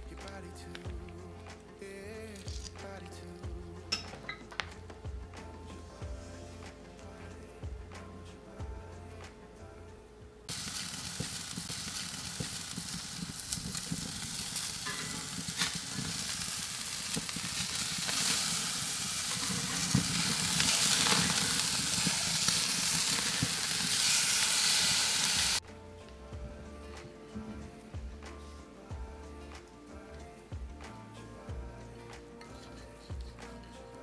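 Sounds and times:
crackles: 0.0 - 3.5, 10.4 - 26.2
steaks sizzling on grill: 10.5 - 25.6.

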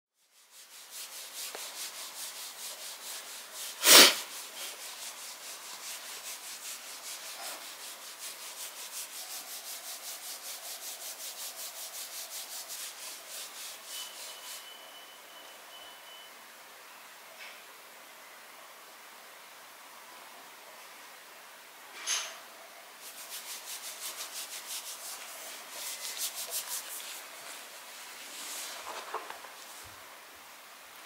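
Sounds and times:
rhythmic rubbing of dog fur: 0.2 - 15.2, 23.0 - 30.0.

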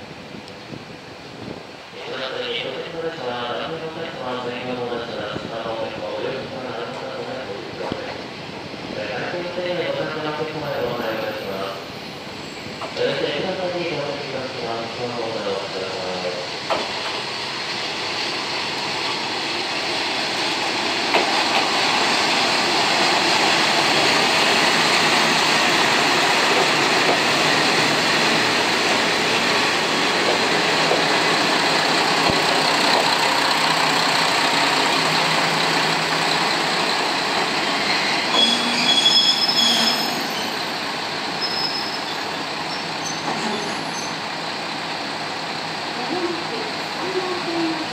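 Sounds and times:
diesel railcar engines running: 0.0 - 47.9
brakes squealing: 30.3 - 44.5.

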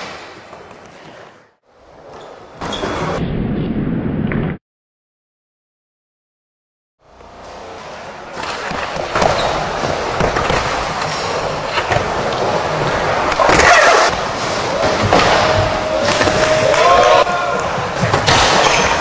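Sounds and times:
skateboard scrape: 11.0 - 14.8.

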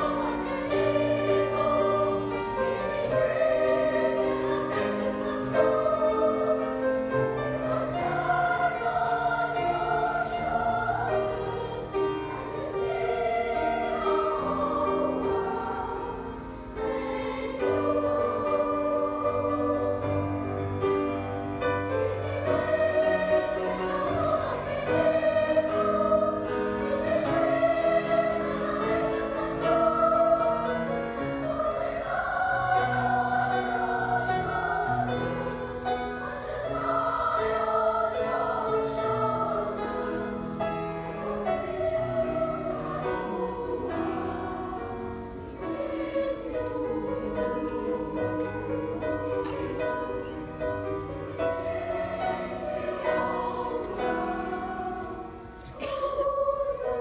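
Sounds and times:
choir singing sustained notes: 0.0 - 57.0.

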